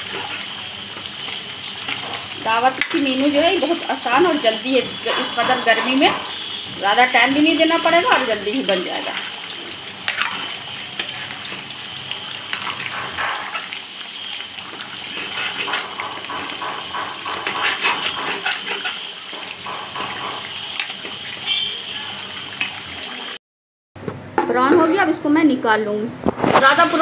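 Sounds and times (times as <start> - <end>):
curry simmering and bubbling: 0.0 - 21.9
metal ladle scraping pan: 1.3 - 21.9.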